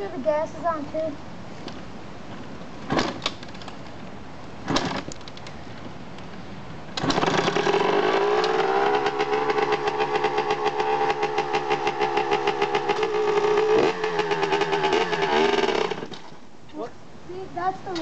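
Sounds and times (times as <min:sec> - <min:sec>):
dirt bike engine idling: 0:07.1 - 0:16.3.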